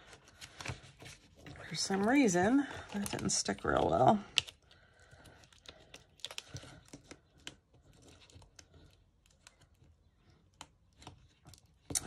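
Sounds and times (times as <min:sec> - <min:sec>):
paper rustling: 0:00.0 - 0:04.5.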